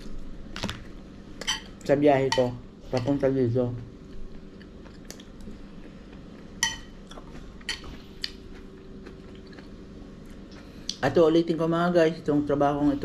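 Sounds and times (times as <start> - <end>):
metal spoon clinking on dish: 1.4 - 3.2, 6.6 - 6.9.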